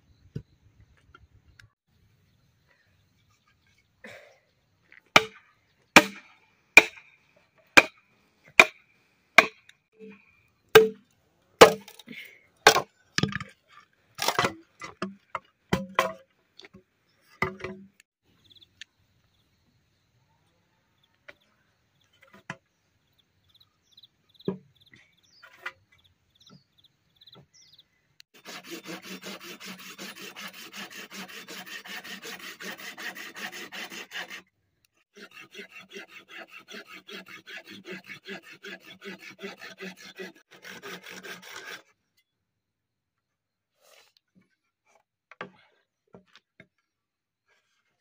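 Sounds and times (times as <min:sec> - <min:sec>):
machete chopping bamboo: 0:05.1 - 0:05.4, 0:06.0 - 0:07.2, 0:07.8 - 0:08.0, 0:08.6 - 0:08.8, 0:09.4 - 0:09.7, 0:10.8 - 0:11.0, 0:11.6 - 0:12.0, 0:12.6 - 0:13.5, 0:14.2 - 0:16.3.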